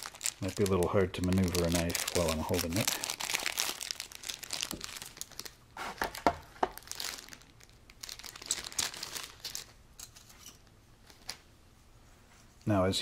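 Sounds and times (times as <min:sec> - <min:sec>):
cellophane bag crinkling: 0:00.0 - 0:09.8.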